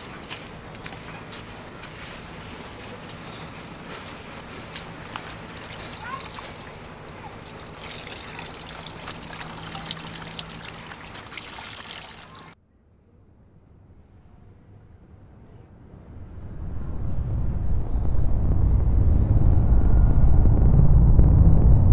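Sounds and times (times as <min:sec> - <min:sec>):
water splashing in a bucket: 0:05.1 - 0:12.6
low rumble: 0:16.2 - 0:21.9.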